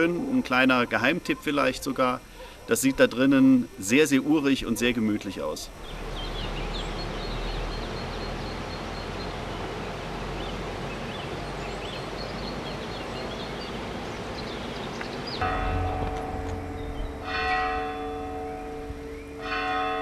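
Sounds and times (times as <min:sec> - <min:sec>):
small birds chirping: 0:00.0 - 0:19.7
outdoor background rush: 0:00.0 - 0:20.0
church bell ringing: 0:15.4 - 0:20.0.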